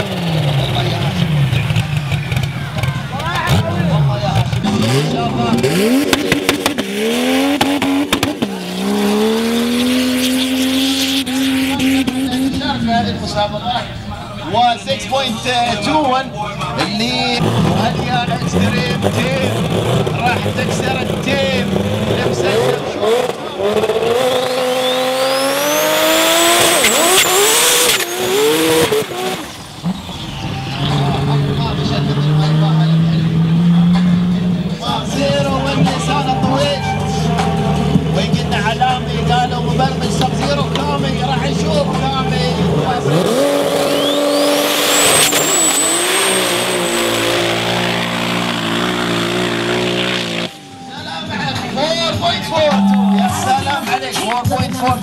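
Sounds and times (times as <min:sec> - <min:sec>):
drag car engine revving: 0:00.0 - 0:55.0
turbo whistle: 0:24.4 - 0:28.5, 0:43.8 - 0:47.8
sharp bursts of noise: 0:43.2 - 0:50.6.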